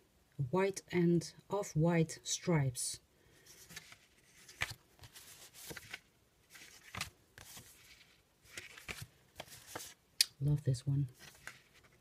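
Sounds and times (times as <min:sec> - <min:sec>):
cards rustling and sliding: 0:03.4 - 0:10.0, 0:11.1 - 0:12.0.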